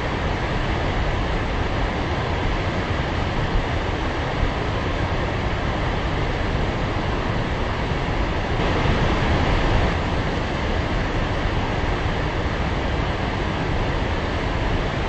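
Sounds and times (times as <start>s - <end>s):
waterfall rushing: 8.6s - 13.4s.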